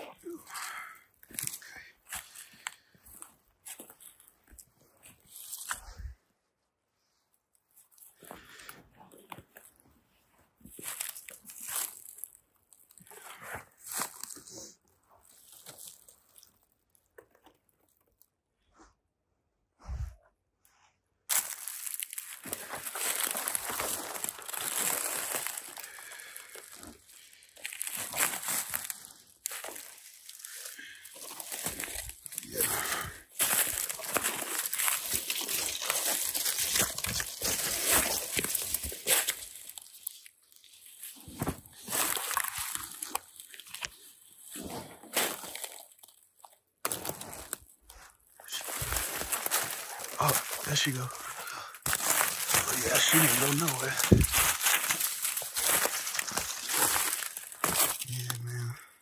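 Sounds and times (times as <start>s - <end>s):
brush and twigs rustling: 0.0s - 6.1s, 7.5s - 18.3s, 21.3s - 58.7s
footsteps crunching dry leaves: 10.7s - 13.2s, 13.8s - 14.6s, 15.2s - 16.5s, 21.3s - 58.6s.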